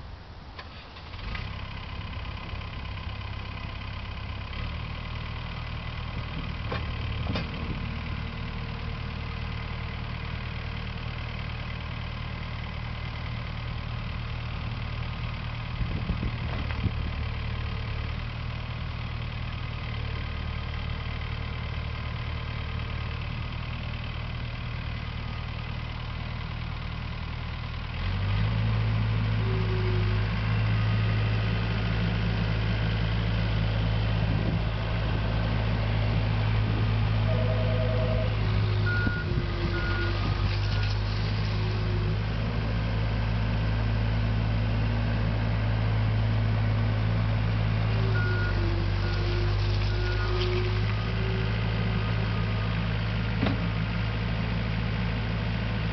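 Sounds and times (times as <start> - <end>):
skid steer engine running: 1.0 - 55.9
short clunks: 6.3 - 7.9, 53.4 - 53.7.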